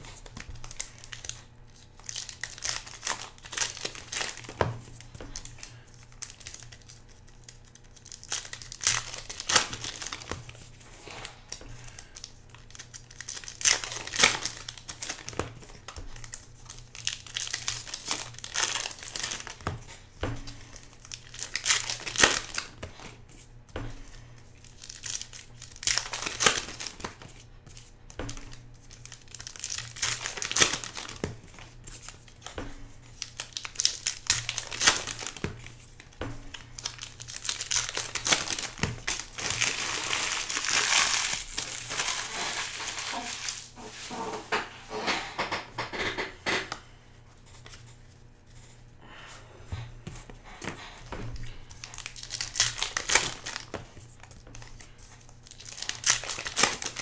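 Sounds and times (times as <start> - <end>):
card pack wrappers tearing: 0.1 - 19.7, 20.8 - 22.9, 24.6 - 32.6, 33.2 - 43.7, 51.7 - 57.0.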